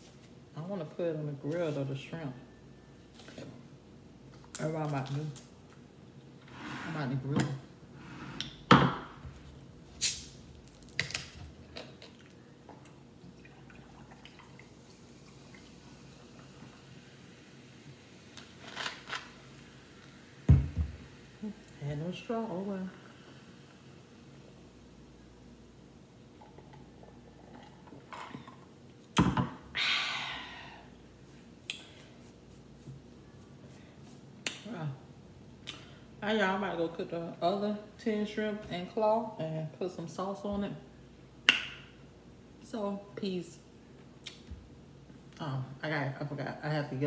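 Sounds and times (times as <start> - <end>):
cola fizzing while poured: 13.2 - 21.8, 26.3 - 28.6
person sighing ahh: 29.7 - 30.9.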